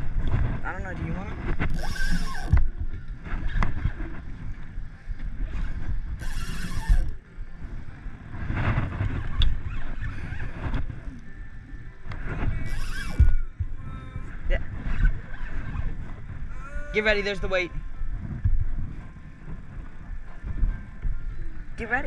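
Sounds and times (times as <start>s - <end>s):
wind buffeting microphone: 0.0s - 22.0s
water lapping at a boat: 1.4s - 11.3s.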